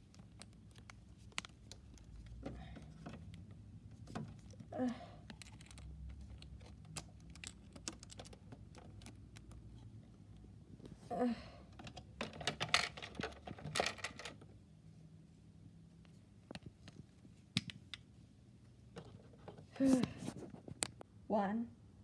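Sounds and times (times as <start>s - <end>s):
plastic toys clicking and tapping: 0.0s - 9.7s, 11.7s - 14.5s.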